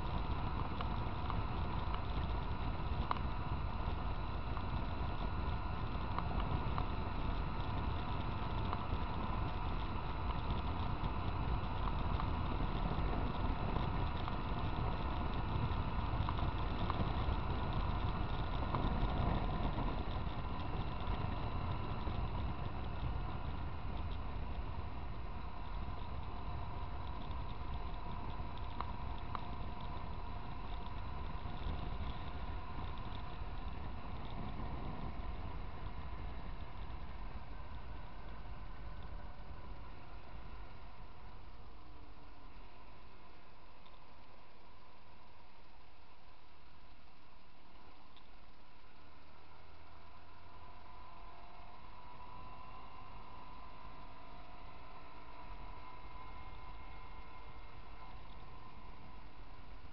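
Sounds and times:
wind rush on microphone: 0.0s - 40.9s
motorcycle engine drone: 0.0s - 59.9s.

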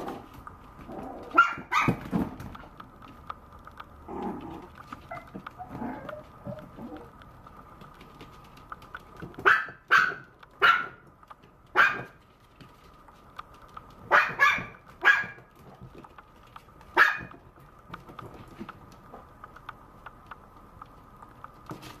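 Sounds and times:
puppy barking: 1.2s - 2.0s, 9.4s - 11.0s, 11.7s - 12.2s, 14.1s - 15.5s, 16.9s - 17.4s.

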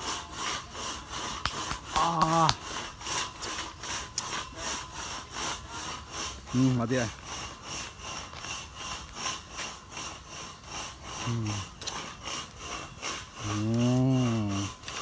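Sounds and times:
high-pitched rasping pulse: 4.2s - 15.0s.

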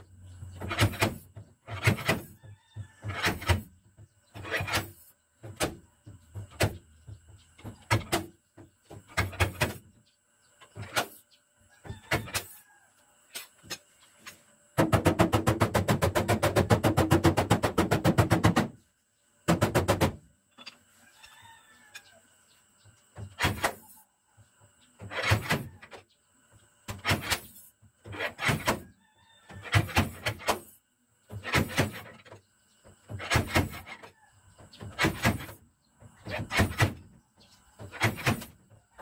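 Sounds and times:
chicken clucking: 20.6s - 22.7s.

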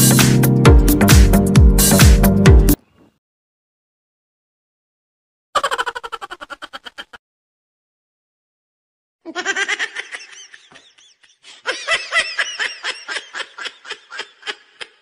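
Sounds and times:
person laughing: 5.6s - 7.2s, 9.2s - 15.0s.

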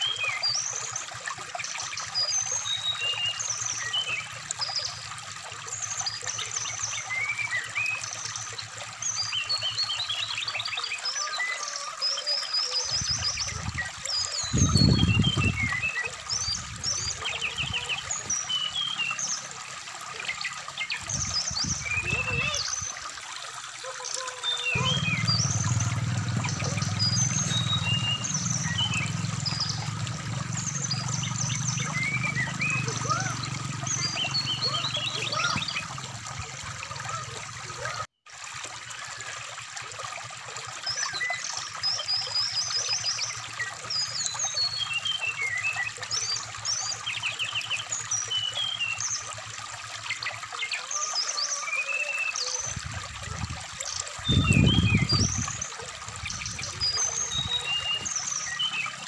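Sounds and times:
bird chirping and trilling: 0.0s - 5.0s, 5.7s - 19.5s, 20.1s - 23.1s, 23.8s - 38.0s, 50.0s - 59.0s
stream flowing: 0.0s - 59.0s.

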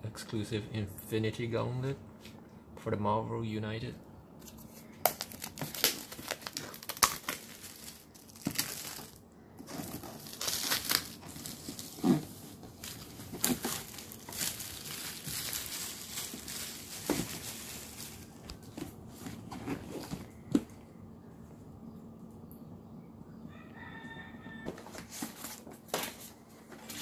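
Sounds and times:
plastic shrink-wrap crinkling: 5.0s - 18.8s.

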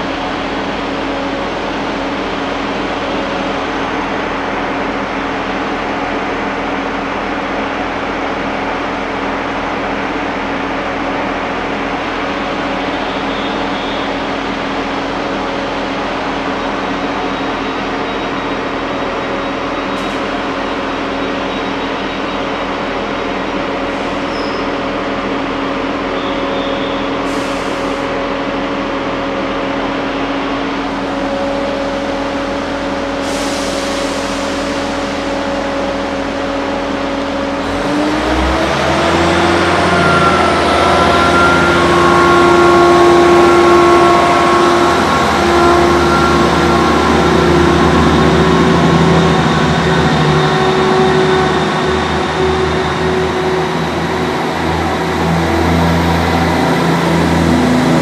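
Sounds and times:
train engine idling: 0.0s - 58.0s.

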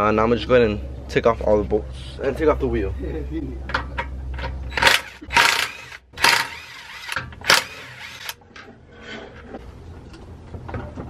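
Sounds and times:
impact wrench spinning bolts: 4.7s - 8.4s.

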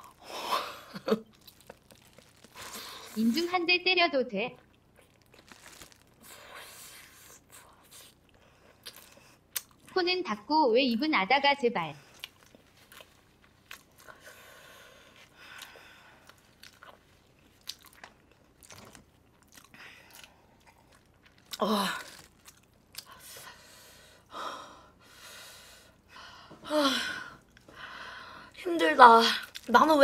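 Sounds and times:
chewing food: 1.2s - 3.2s, 4.6s - 6.3s, 7.3s - 10.0s, 12.0s - 14.4s, 15.1s - 23.2s.

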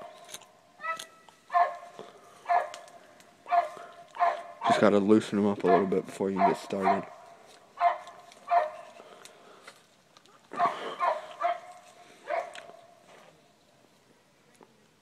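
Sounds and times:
dog barking: 0.8s - 4.9s, 5.6s - 7.2s, 7.8s - 8.9s, 10.5s - 13.0s.

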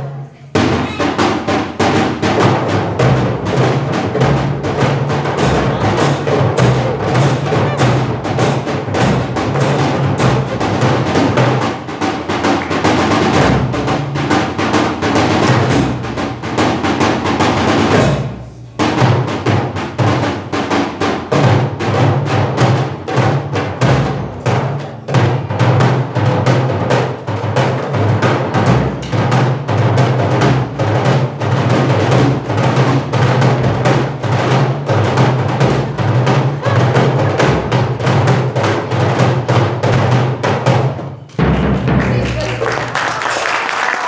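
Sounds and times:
goblet drum played by hand: 0.5s - 42.3s
bass drum struck with mallet: 0.6s - 14.6s.

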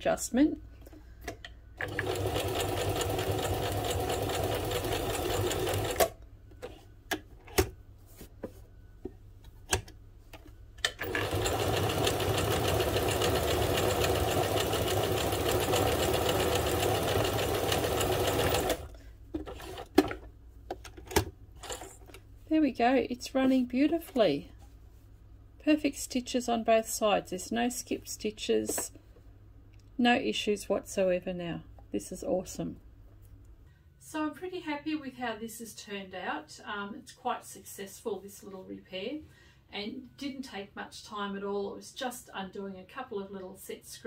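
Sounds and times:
sewing machine running: 1.8s - 6.1s, 11.0s - 18.9s.

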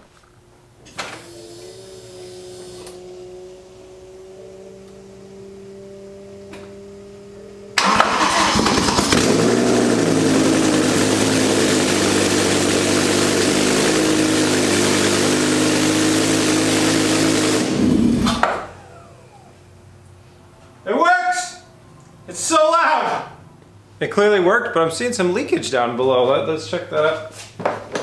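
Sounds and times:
loud engine starting and idling: 1.1s - 4.1s, 7.7s - 19.8s.

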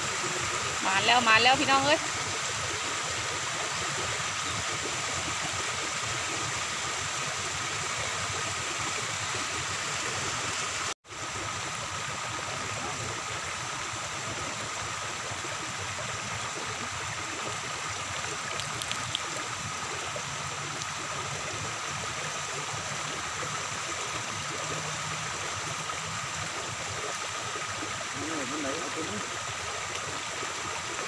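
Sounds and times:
floodwater rushing: 0.0s - 31.0s
faint clicks: 18.5s - 19.4s.

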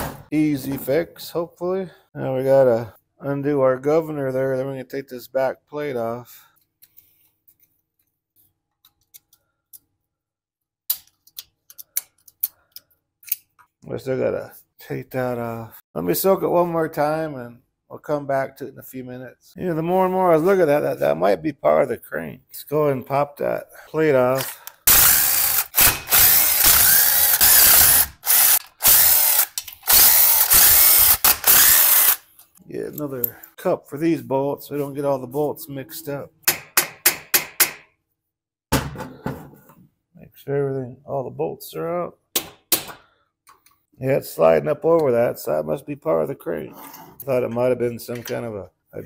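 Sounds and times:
impact driver hammering: 24.9s - 28.6s.

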